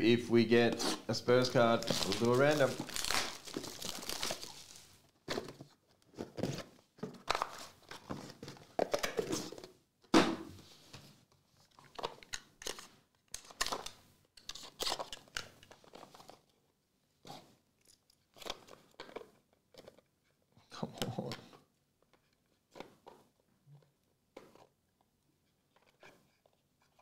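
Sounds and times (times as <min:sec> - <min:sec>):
packaging tearing and rustling: 0:00.8 - 0:04.9, 0:12.2 - 0:16.5.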